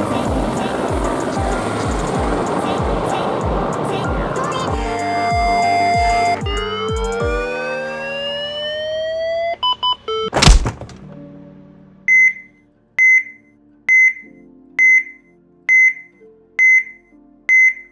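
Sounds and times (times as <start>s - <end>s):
rising sweep of tones: 0.0s - 9.6s
heart monitor beep: 9.6s - 10.3s, 12.1s - 17.9s.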